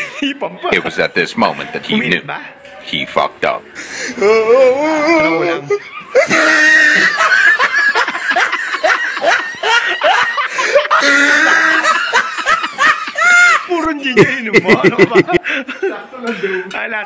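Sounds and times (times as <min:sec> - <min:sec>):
voices: 0:00.0 - 0:17.0
people laughing loudly: 0:03.8 - 0:16.7.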